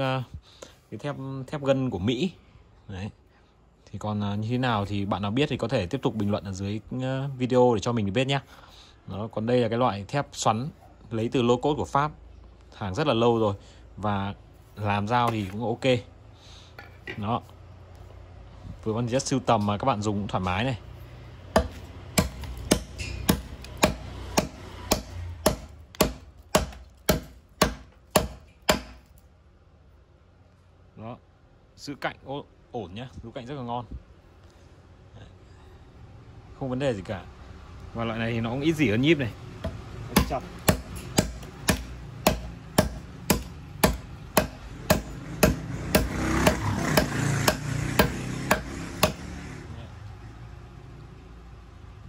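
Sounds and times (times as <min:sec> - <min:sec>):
chopping knife striking wood: 0:21.5 - 0:29.1, 0:39.6 - 0:49.3.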